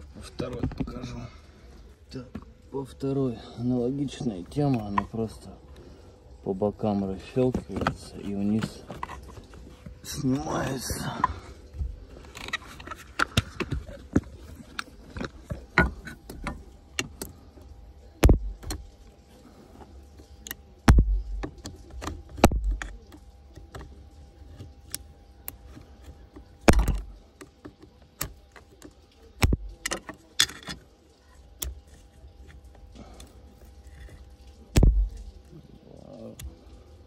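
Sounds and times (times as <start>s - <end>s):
clicks and rattles of parts: 12.2s - 17.4s, 20.2s - 35.4s
heavy thumps: 18.2s - 18.8s, 34.8s - 35.3s.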